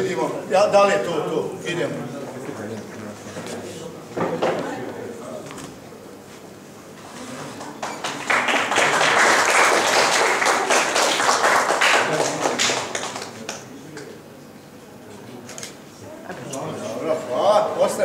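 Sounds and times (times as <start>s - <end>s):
audience applauding: 7.5s - 13.7s.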